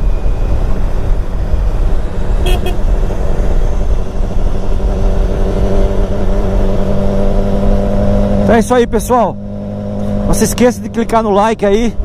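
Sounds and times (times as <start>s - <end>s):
motorcycle engine: 0.0s - 12.0s
horn beeping: 2.4s - 2.9s.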